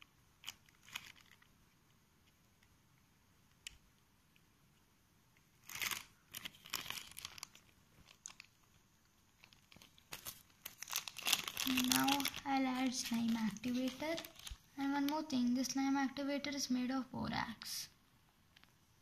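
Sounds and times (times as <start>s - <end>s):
plastic bag crinkling: 0.4s - 1.5s, 5.6s - 15.3s.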